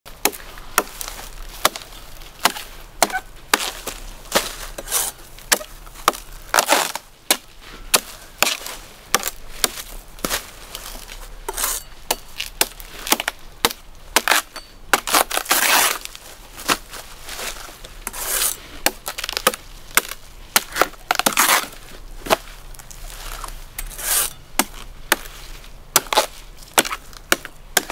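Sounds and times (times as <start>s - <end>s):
knife chopping coconut husk: 0.2s - 1.0s, 1.6s - 10.4s, 24.0s - 25.3s, 26.0s - 27.9s
knife scraping: 11.5s - 12.2s, 18.1s - 18.6s, 23.8s - 24.4s.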